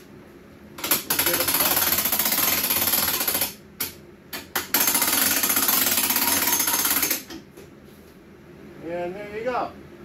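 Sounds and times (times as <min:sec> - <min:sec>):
impact driver rattling: 0:00.8 - 0:07.3.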